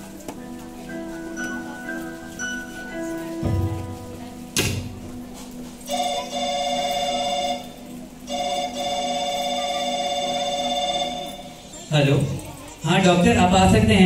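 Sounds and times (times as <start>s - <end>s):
soft background music: 0.0s - 14.0s
sharp knock: 4.6s - 4.9s
telephone ringing: 5.8s - 11.9s.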